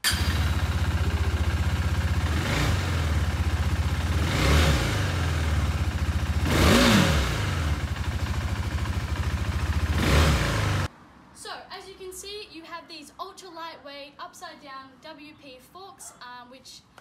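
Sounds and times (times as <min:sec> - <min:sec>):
motorcycle engine idling and revving: 0:00.0 - 0:10.9.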